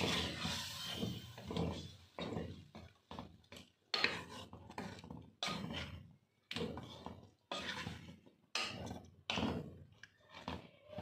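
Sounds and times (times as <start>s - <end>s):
wooden spatula scraping metal pot: 0.0s - 11.0s.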